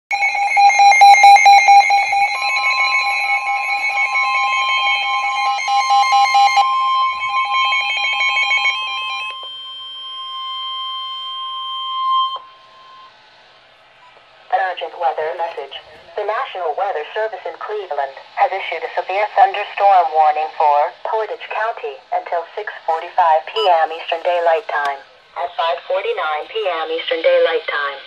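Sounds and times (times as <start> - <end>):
pulsing alarm beeps: 0.1 - 13.2
steady warning alarm tone: 0.1 - 28.0.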